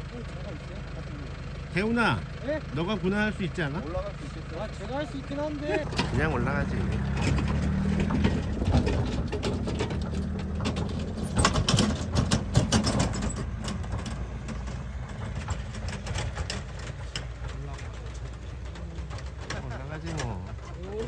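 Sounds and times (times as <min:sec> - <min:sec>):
diesel engine under load: 0:00.0 - 0:21.0.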